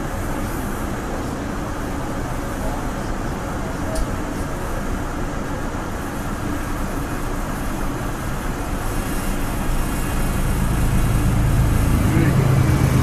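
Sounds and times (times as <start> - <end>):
freight train passing: 0.0 - 13.0
low locomotive drone: 0.0 - 13.0.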